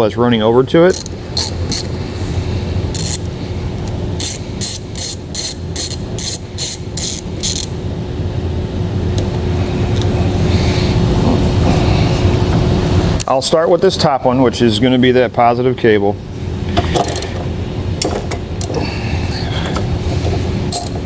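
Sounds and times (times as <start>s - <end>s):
steady low hum: 0.0s - 21.0s
hand ratchet clicking: 0.9s - 1.9s, 3.0s - 3.3s, 4.2s - 7.7s, 17.0s - 17.3s, 20.7s - 21.0s.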